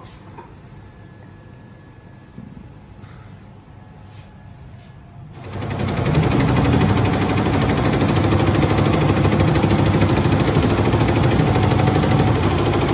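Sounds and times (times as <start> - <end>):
embroidery machine clattering: 5.4 - 12.9.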